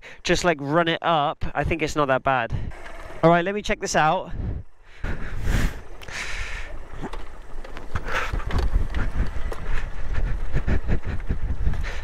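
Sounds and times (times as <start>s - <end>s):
motorcycle riding: 2.6s - 12.0s.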